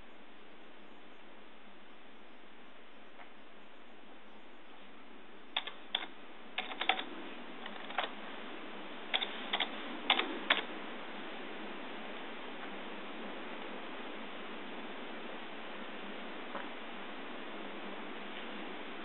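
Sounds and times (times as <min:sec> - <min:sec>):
steady hiss: 0:00.0 - 0:19.0
keyboard key clicks: 0:05.6 - 0:07.0.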